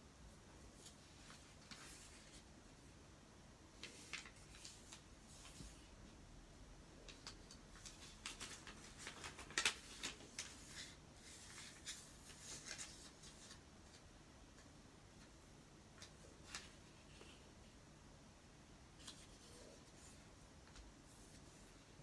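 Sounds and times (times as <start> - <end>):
paper rustling and crinkling: 0.7 - 2.6, 3.8 - 6.0, 7.0 - 14.0, 16.0 - 17.5, 19.0 - 22.0.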